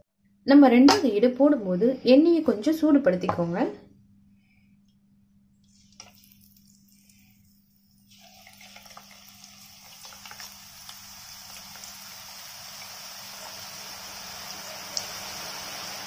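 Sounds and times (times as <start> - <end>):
batter sizzling in hot oil: 5.7 - 16.0.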